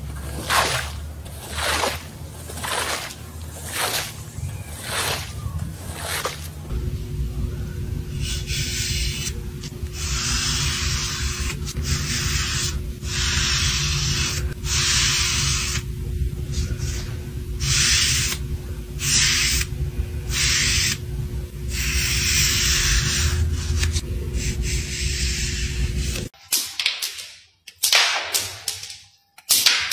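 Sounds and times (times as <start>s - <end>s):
low hum: 0.0s - 17.7s, 18.4s - 19.0s, 19.6s - 26.3s
paint brush rasping on wood: 0.1s - 6.6s.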